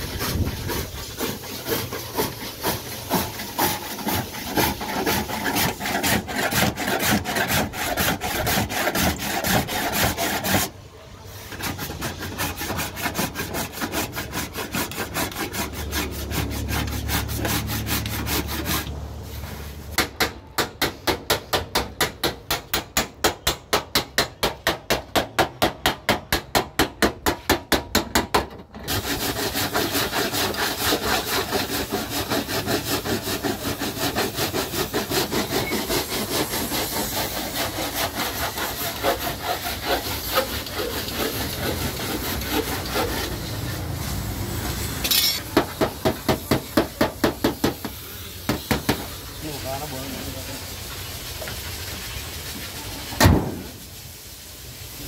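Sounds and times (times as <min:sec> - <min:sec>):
hand rubbing car body: 0:00.0 - 0:10.7, 0:28.9 - 0:43.5.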